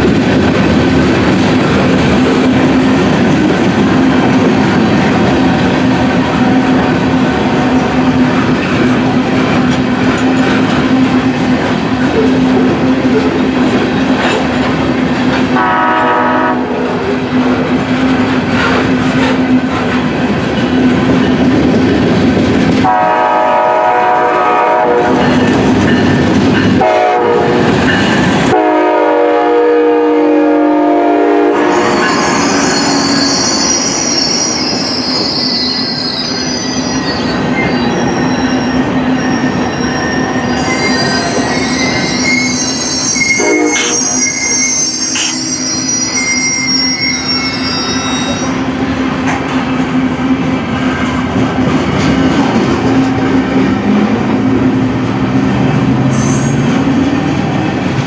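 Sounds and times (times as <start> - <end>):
freight train rumbling past: 0.0 - 58.0
train horn blasts: 15.5 - 16.9, 22.8 - 25.4, 26.8 - 27.8, 28.5 - 33.1, 41.7 - 46.0
train wheel squeal: 31.6 - 48.7, 56.0 - 57.6.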